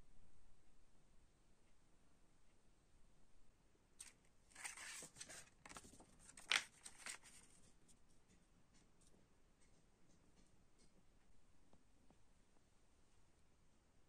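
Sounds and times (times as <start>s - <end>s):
sharp paper crackle: 4.0s - 7.6s
paper rustling and crinkling: 4.0s - 7.8s.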